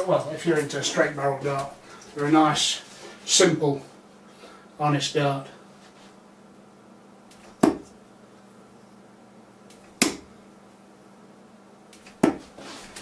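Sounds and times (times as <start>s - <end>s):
darts striking dartboard: 7.4s - 8.0s, 9.8s - 10.3s, 12.0s - 12.5s.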